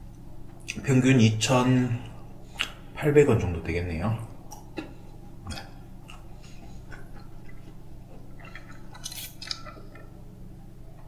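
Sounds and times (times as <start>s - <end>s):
steady low hum: 0.0s - 11.0s
person chewing: 4.5s - 10.2s.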